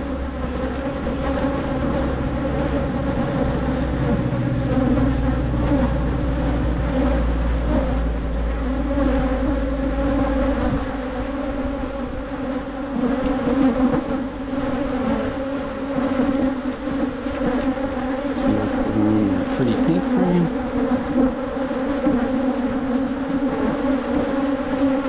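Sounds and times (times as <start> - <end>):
honey bees buzzing: 0.0 - 25.0.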